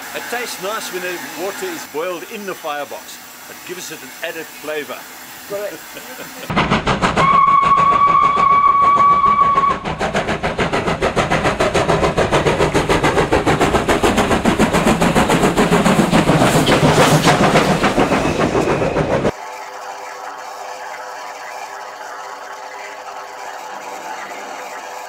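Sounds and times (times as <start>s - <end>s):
steam locomotive exhaust beating: 0.0s - 19.4s
steam whistle: 7.2s - 10.0s.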